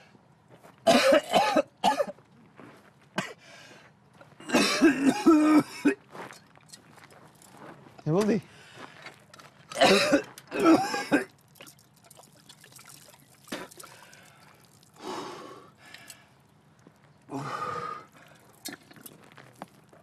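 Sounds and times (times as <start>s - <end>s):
man retching and groaning: 9.7s - 11.3s
water pouring and splashing: 11.1s - 15.2s, 18.2s - 20.0s.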